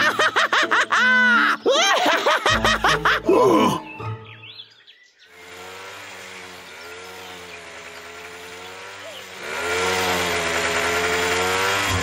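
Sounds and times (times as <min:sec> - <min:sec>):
chainsaw cutting tree trunk: 0:05.3 - 0:12.0.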